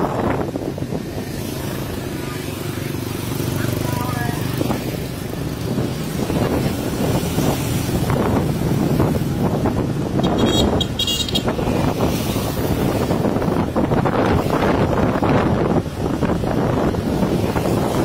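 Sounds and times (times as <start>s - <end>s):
motorbike running: 0.0s - 18.0s
wind buffeting microphone: 0.0s - 18.0s.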